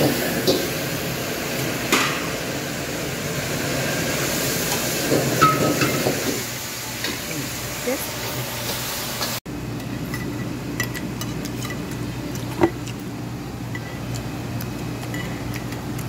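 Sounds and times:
wok hissing: 0:00.0 - 0:09.4.

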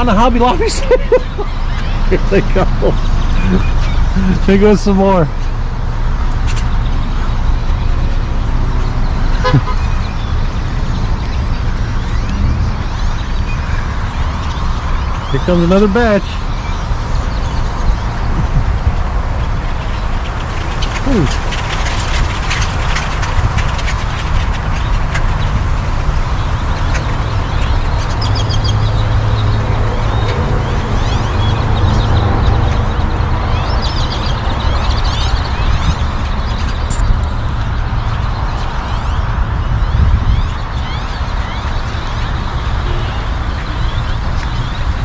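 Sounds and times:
flock of birds chattering: 0:00.0 - 0:45.0
low rumble of traffic or wind: 0:00.0 - 0:45.0
low rumble: 0:05.6 - 0:15.0.

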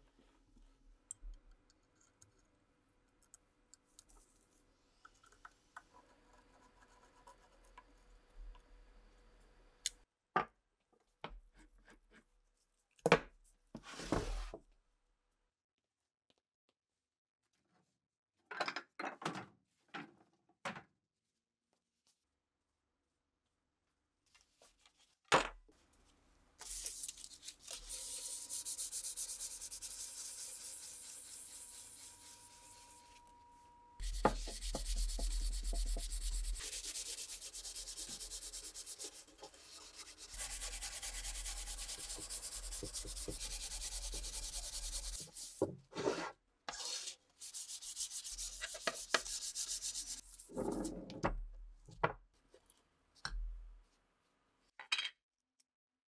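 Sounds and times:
sandpaper rubbing on wood: 0:26.6 - 0:33.2, 0:34.0 - 0:45.6, 0:46.8 - 0:50.5.

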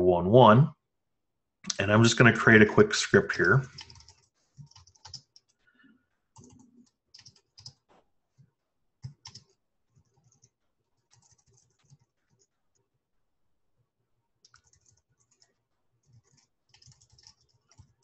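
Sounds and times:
typing on computer keyboard: 0:03.4 - 0:05.6, 0:06.4 - 0:07.9, 0:09.0 - 0:12.5, 0:14.4 - 0:18.0.

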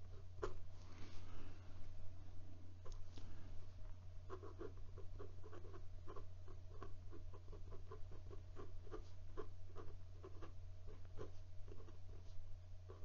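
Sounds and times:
pen nib scratching on paper: 0:04.3 - 0:13.0.

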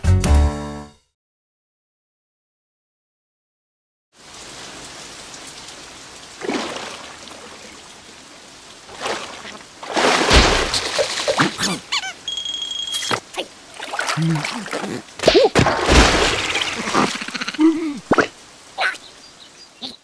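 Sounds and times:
cartoon rain falling: 0:04.2 - 0:20.0
drips and splashes: 0:04.2 - 0:20.0.

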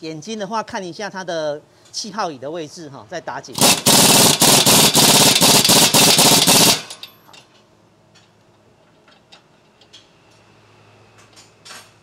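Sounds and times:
air impact wrench hammering: 0:03.5 - 0:07.2.

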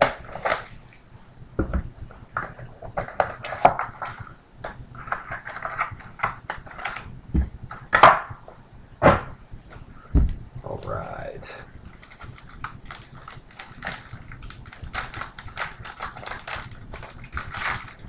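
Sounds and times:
cardboard and foil rustling: 0:11.8 - 0:18.0.

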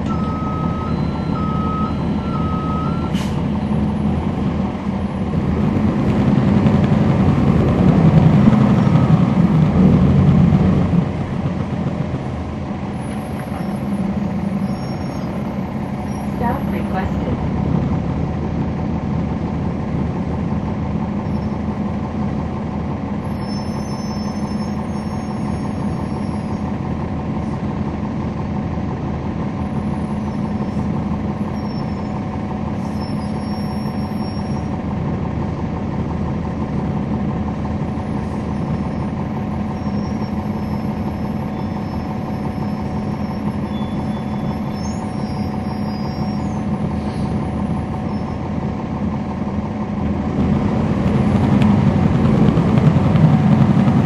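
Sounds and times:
bus diesel engine running: 0:00.0 - 0:54.0
faint high whistling tones: 0:39.8 - 0:46.7.

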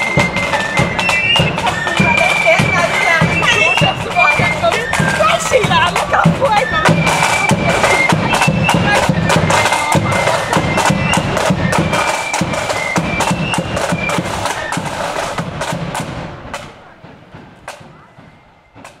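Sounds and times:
shrill flutes: 0:00.0 - 0:15.6
bass drum beats: 0:00.0 - 0:19.0
drum taps: 0:00.0 - 0:19.0
snare drum rolls: 0:00.0 - 0:19.0.

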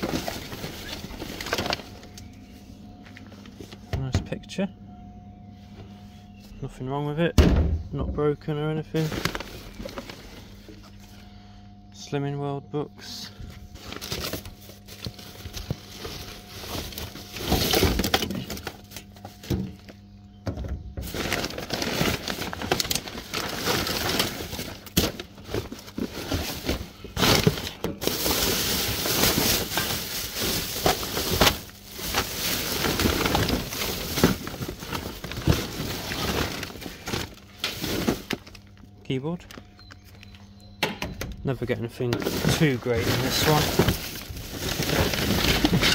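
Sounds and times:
rustling of plastic and paper: 0:00.0 - 0:04.5, 0:08.8 - 0:11.3, 0:13.2 - 0:20.1, 0:21.0 - 0:40.4, 0:41.6 - 0:45.9.

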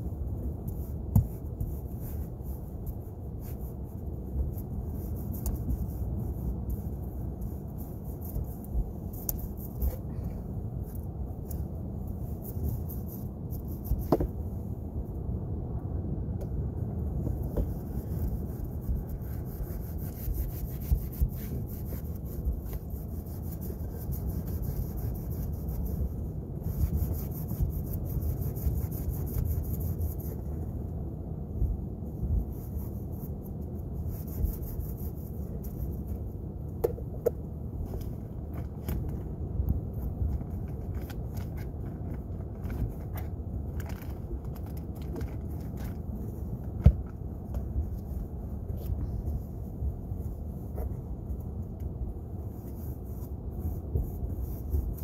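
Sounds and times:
steady low rumble: 0:00.0 - 0:55.0
paintbrush rubbing on wood: 0:17.5 - 0:30.5.

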